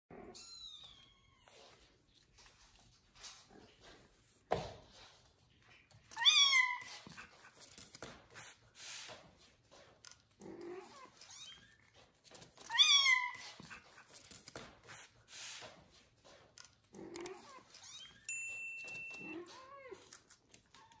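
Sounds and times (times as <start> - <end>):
soft rustles and scuffs: 0.8 - 16.9.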